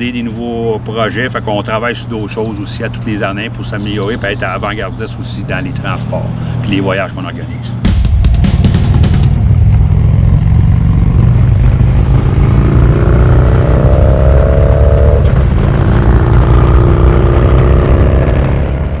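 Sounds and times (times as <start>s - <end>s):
vehicle engine accelerating: 7.7s - 19.0s.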